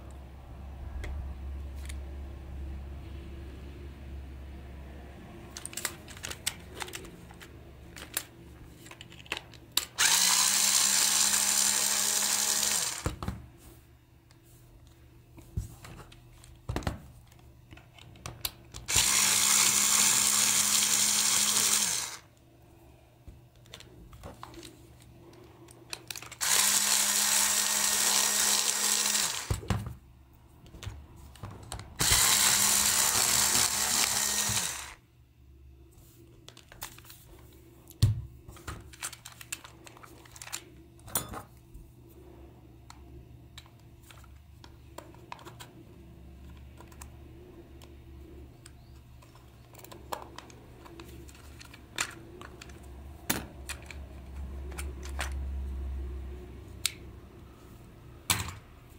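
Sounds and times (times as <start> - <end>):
electric screwdriver whining: 10.0 - 13.1, 18.9 - 22.3, 26.4 - 29.6, 32.0 - 35.0.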